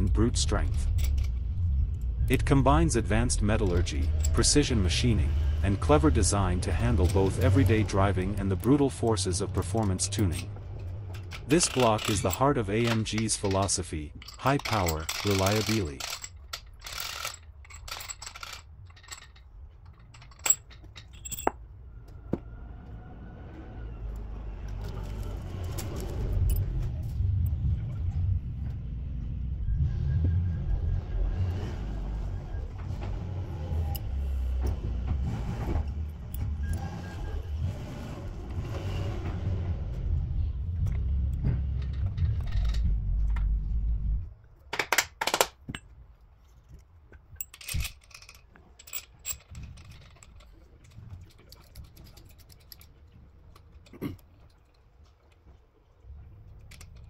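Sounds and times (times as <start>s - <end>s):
loud low rumble: 0.0s - 11.7s.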